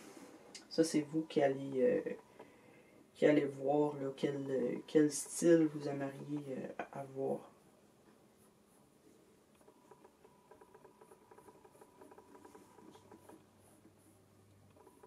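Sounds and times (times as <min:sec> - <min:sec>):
pencil scratching strokes: 0:03.2 - 0:15.0.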